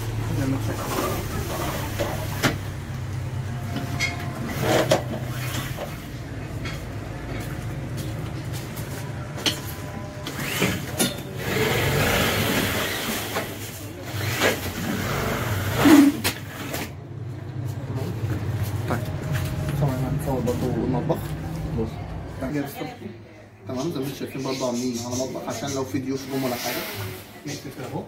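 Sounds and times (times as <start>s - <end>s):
curtain sliding along track: 3.8s - 6.1s, 10.2s - 16.9s, 26.2s - 27.6s.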